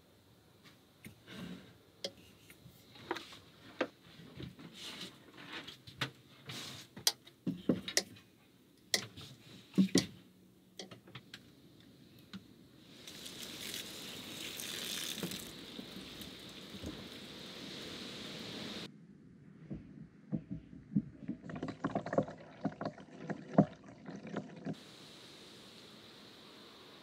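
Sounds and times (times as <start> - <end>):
water pouring from jerrycan: 13.0 - 17.3, 21.4 - 24.8.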